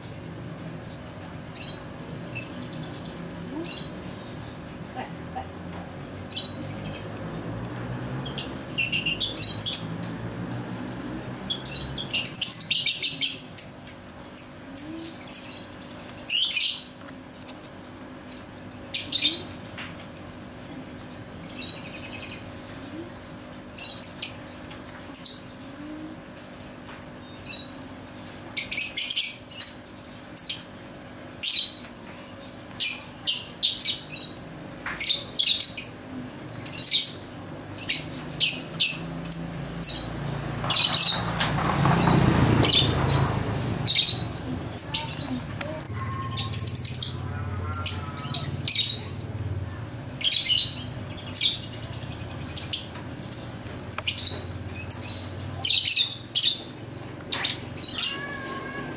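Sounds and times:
lovebirds chirping: 0.6s - 4.6s, 31.4s - 49.5s, 50.2s - 58.8s.

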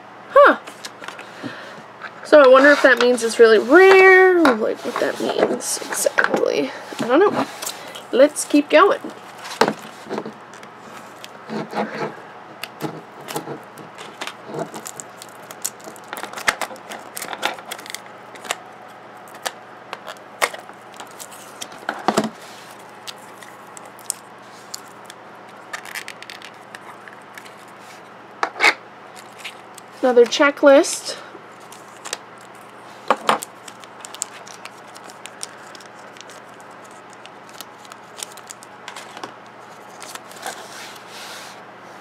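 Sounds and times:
plastic wrapping crinkling: 12.6s - 18.6s, 19.2s - 28.0s, 29.1s - 30.2s, 31.5s - 41.1s.

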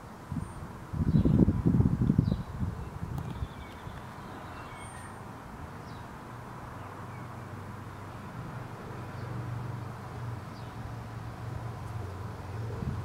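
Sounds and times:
faint bird chirps: 2.2s - 5.2s.

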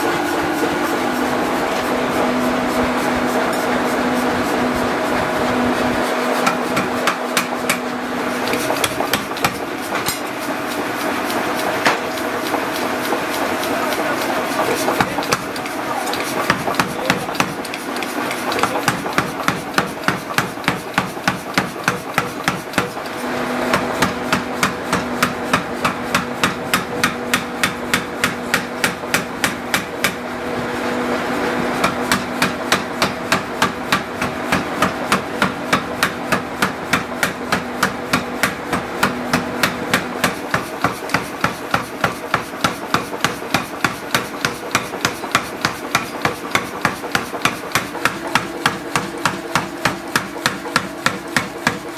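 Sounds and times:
power hammer pounding metal: 0.0s - 30.9s, 31.8s - 51.9s.

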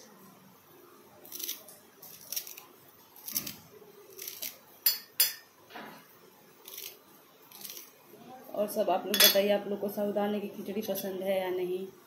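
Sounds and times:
knife cutting herb stems: 1.3s - 4.6s.

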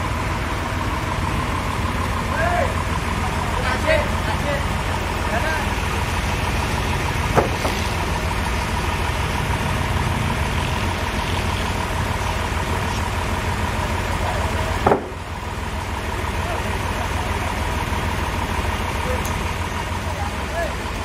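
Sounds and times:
forklift engine idling: 0.0s - 21.0s
sharp knocks: 7.3s - 7.8s, 14.8s - 15.2s.

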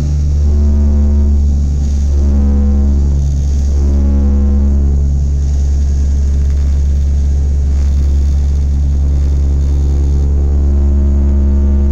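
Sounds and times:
propeller plane engine droning: 0.0s - 11.9s.

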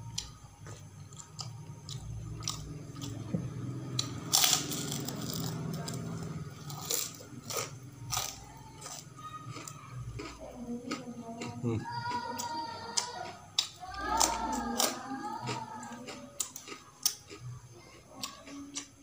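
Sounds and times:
wet chewing clicks: 0.1s - 3.2s, 3.9s - 19.0s
cracker crunching: 3.9s - 11.0s.

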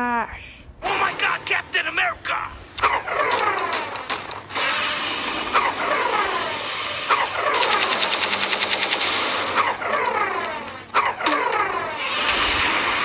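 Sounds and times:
heavy gunshots: 2.7s - 13.0s
automatic gunfire burst: 2.8s - 13.0s.

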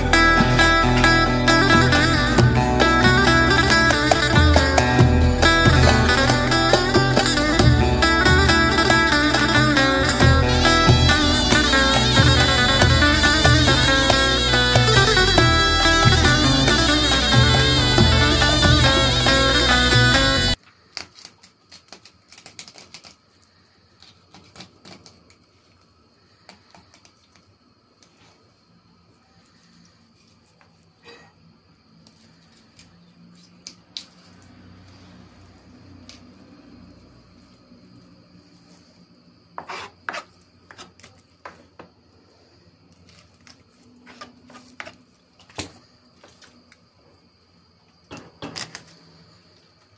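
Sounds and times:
knife scraping fish on board: 39.6s - 40.9s.

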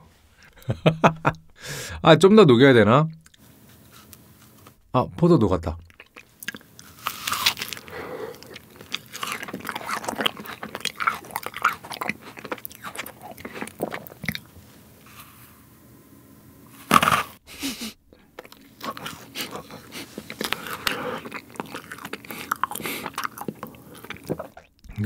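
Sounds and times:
mouth clicks while chewing: 5.8s - 14.5s
biting soft sandwich: 6.0s - 14.6s.

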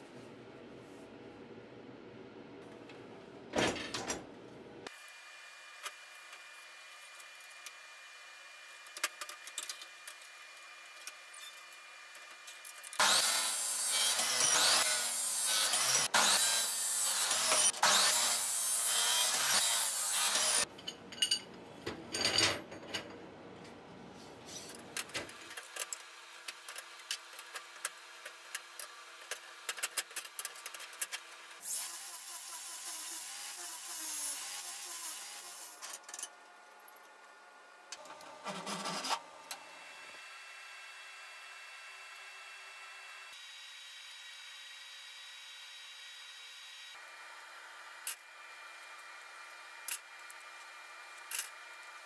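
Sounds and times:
chop saw grinding steel: 12.9s - 20.7s.

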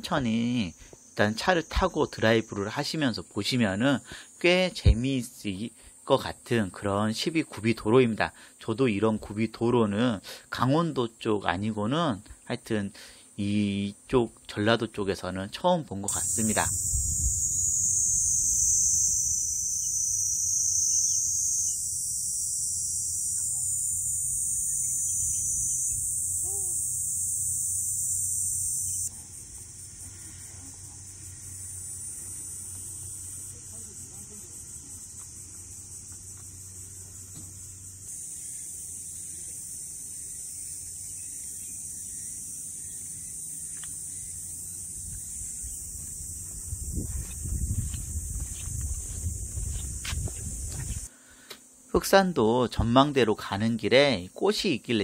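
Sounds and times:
high-pitched insect drone: 0.0s - 8.2s, 16.1s - 51.1s
wind rumble on microphone: 16.6s - 17.7s, 45.0s - 51.1s.

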